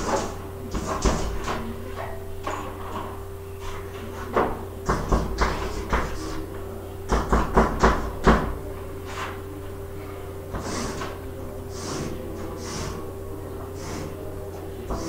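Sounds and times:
steady low hum: 0.0 - 15.0
chalk tapping on blackboard: 4.9 - 6.4.

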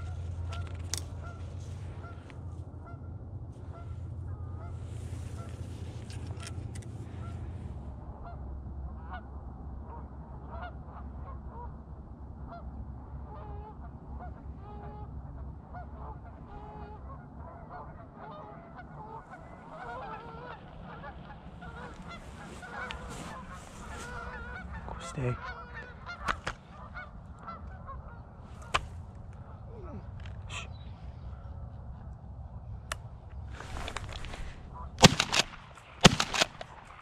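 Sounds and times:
geese honking: 0.0 - 11.8, 12.4 - 37.0
low rumble: 0.0 - 37.0
brief rustle: 33.5 - 35.6.

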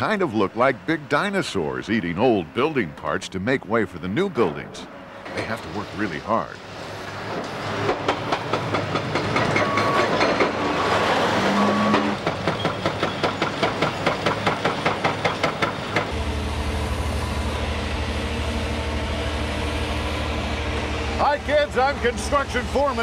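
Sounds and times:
low engine drone: 16.1 - 23.0.

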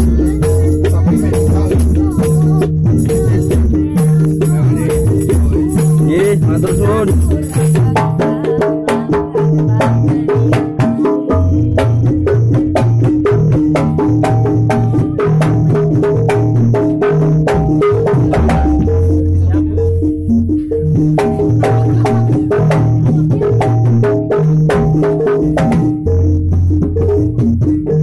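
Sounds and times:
high jingling rattle: 0.0 - 8.0
gamelan ensemble playing: 0.0 - 9.1, 16.8 - 28.0.

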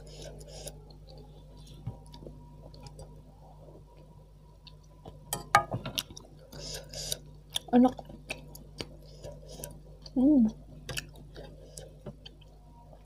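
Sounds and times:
faint steady hum: 0.0 - 13.0
wet chewing sounds: 5.9 - 10.2.

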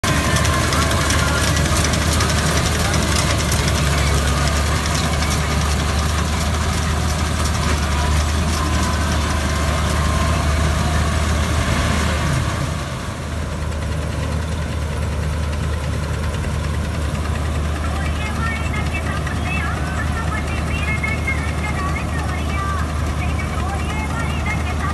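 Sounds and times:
combine harvester engine humming: 0.0 - 24.9.

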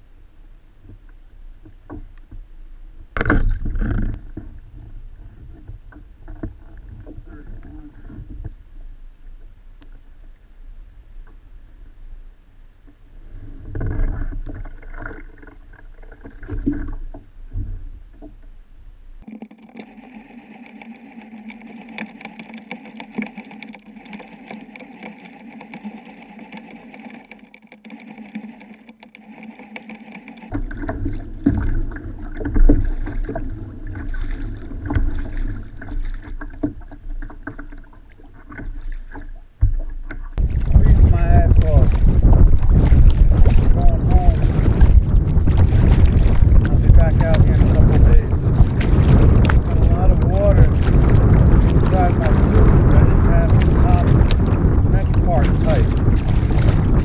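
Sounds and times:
water slapping against a kayak: 3.2 - 8.6, 13.2 - 18.5, 19.2 - 57.0
wind on the microphone: 39.6 - 57.0.

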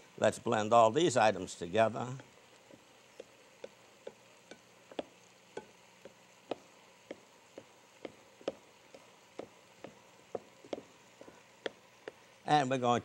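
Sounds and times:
wooden spoon tapping glass bowl: 3.2 - 7.2.

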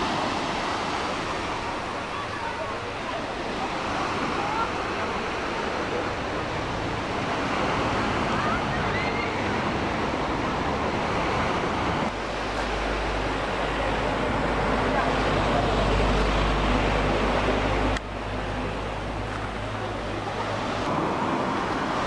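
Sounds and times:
road traffic: 0.0 - 22.0
wind: 0.0 - 22.0.

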